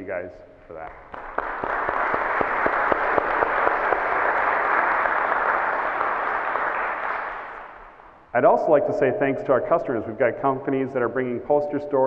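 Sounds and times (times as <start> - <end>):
close hand claps: 0.8 - 8.2
audience applauding: 0.9 - 8.2.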